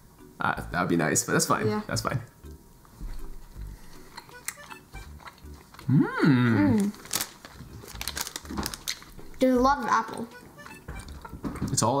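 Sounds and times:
chewing clicks: 4.1s - 5.9s
person humming mmm: 5.8s - 7.0s.

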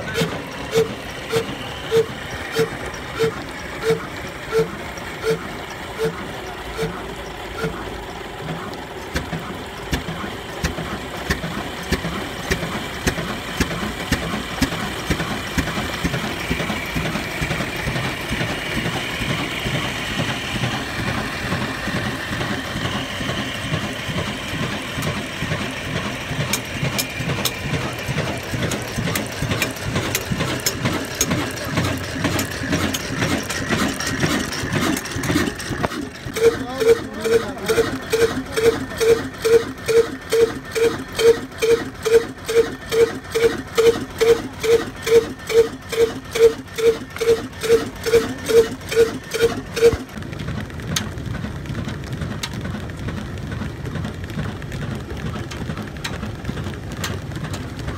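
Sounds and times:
diesel engine knocking: 0.0s - 57.9s
metallic valve gear clatter: 26.4s - 50.0s.

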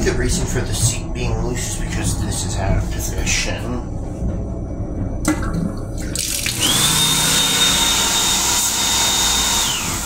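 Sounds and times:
steady high whine: 0.0s - 10.0s
faucet water running into sink: 6.0s - 7.1s.

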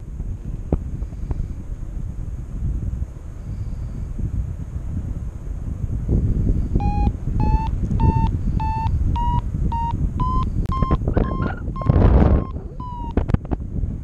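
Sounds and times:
wind rushing over microphone: 0.0s - 14.0s
variometer short beeps rising pitch: 6.8s - 13.2s.

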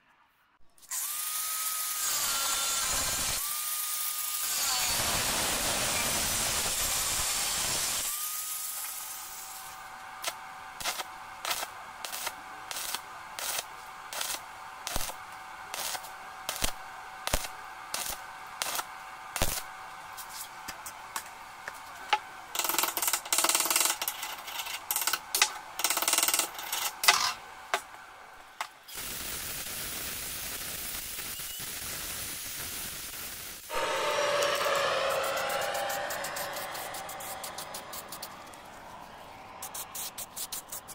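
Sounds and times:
angle grinder cutting steel: 0.8s - 9.6s, 33.7s - 40.3s
arc welder crackling: 4.3s - 20.3s, 28.8s - 35.2s.

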